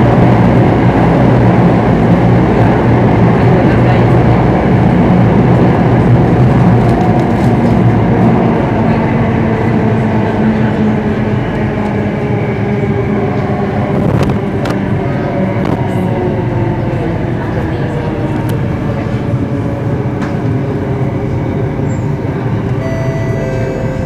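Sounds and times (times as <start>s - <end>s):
train wheels rumbling on rail: 0.0s - 24.0s
humming drone: 22.7s - 24.0s.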